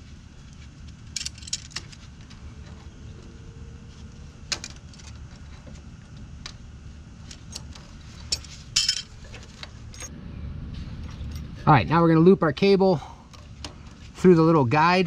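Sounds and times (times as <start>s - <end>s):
low background rumble: 0.0s - 15.0s
metal cable clicks and clinks: 1.1s - 2.0s.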